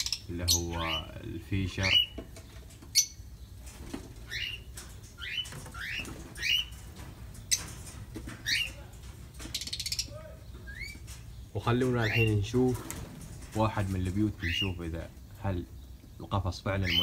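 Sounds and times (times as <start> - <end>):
parrots chirping: 0.0 - 2.2, 2.8 - 3.6, 4.2 - 12.4, 14.4 - 14.9, 16.7 - 17.0.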